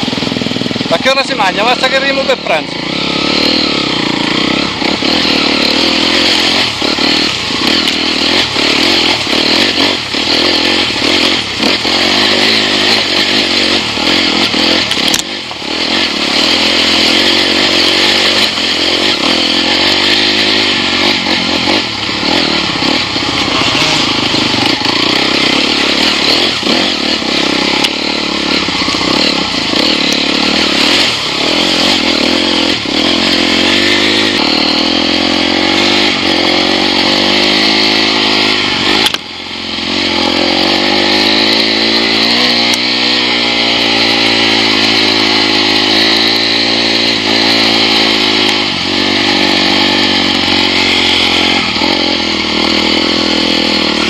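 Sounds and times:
motorcycle engine under throttle: 0.0 - 54.0
bike knocking and clattering: 5.1 - 16.8.

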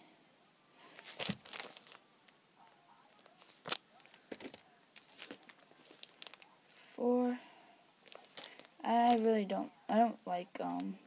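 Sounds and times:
plastic sleeves crinkling: 0.8 - 2.4, 3.1 - 6.6, 8.0 - 9.4.

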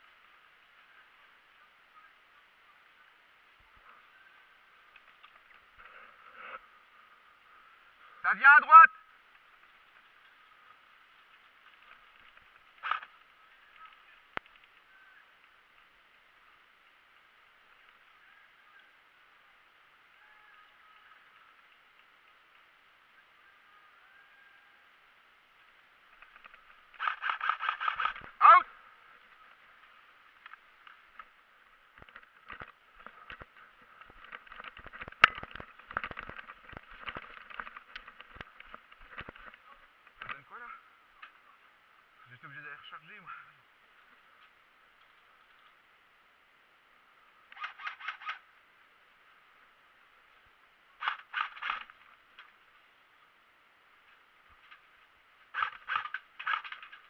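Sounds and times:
faint outdoor hiss: 0.0 - 57.0
sharp crack: 26.1 - 28.6.

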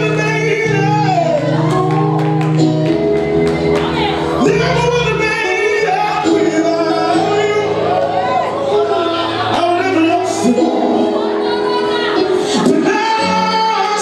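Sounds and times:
bass notes: 0.0 - 13.8
held keyboard chords: 0.0 - 14.0
people singing: 4.0 - 14.0.

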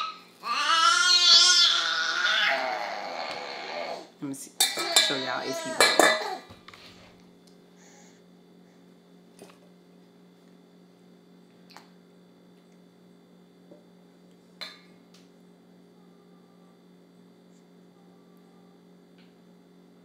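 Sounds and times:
low electrical hum: 0.0 - 20.0
dishes and utensils clicking: 4.6 - 6.4.

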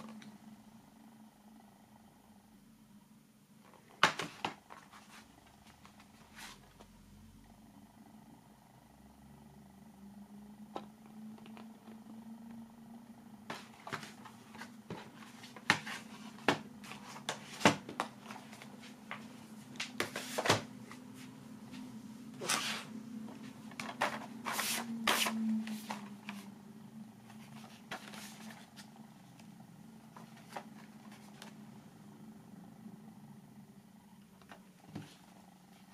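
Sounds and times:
steady low hum: 0.0 - 35.9
plastic cases sliding: 13.5 - 21.0, 22.3 - 26.5.

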